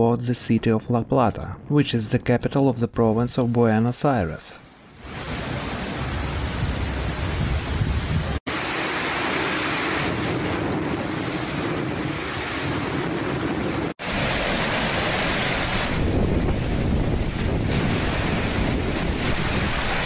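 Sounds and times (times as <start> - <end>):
storm wind: 0.0 - 20.0
heavy rain: 4.7 - 20.0
wind buffeting microphone: 9.2 - 20.0.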